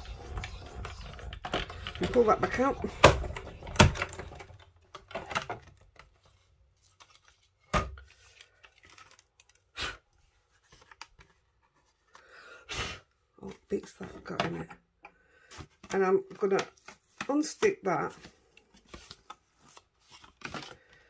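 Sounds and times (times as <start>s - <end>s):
plastic knocks and clicks: 0.9s - 6.1s.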